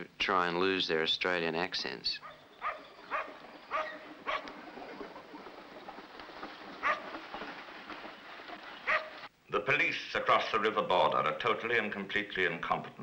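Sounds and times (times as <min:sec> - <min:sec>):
dog barking: 0:02.2 - 0:04.5, 0:06.8 - 0:07.1, 0:08.9 - 0:09.1
steady background hiss: 0:09.2 - 0:13.0.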